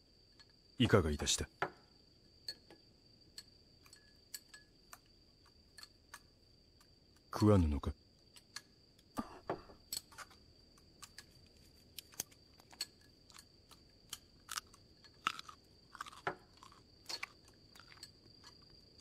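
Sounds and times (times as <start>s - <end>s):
chopsticks clicking against bowls: 2.4s - 7.3s, 9.8s - 16.4s, 17.1s - 19.0s
quiet chewing: 8.2s - 19.0s.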